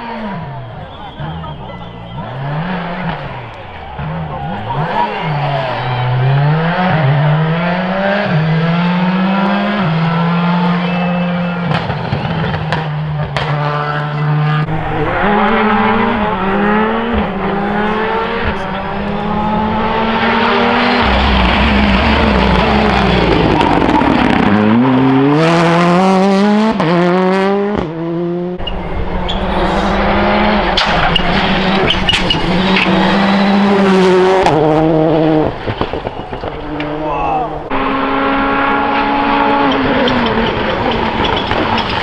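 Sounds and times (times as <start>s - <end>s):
rally car engine at full throttle: 0.0s - 42.0s
engine pops: 28.6s - 37.0s, 39.4s - 42.0s.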